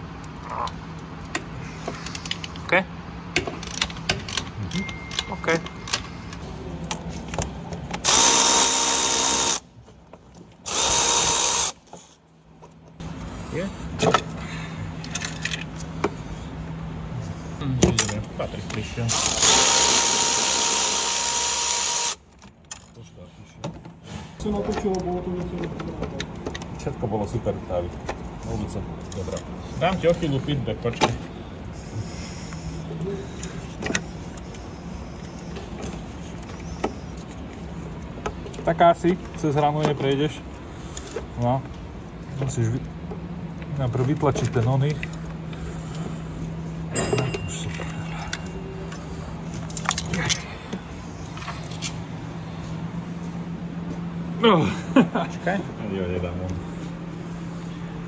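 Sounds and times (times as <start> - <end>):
steady low hum: 0.0 - 58.0
cordless power tool whining: 8.0 - 9.6, 10.7 - 11.8, 19.1 - 22.2.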